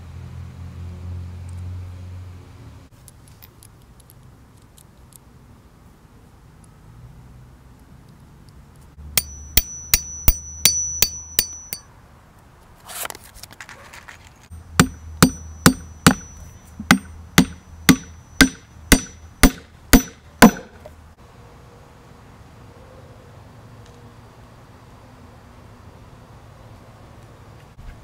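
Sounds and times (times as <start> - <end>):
hammer striking metal tool: 9.1 - 11.8, 14.5 - 20.9
hammer driving nail into wood: 14.8 - 20.9.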